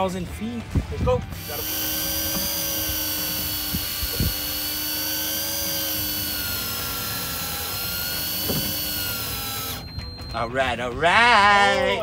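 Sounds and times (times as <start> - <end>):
fishing reel motor whining: 1.4 - 10.4.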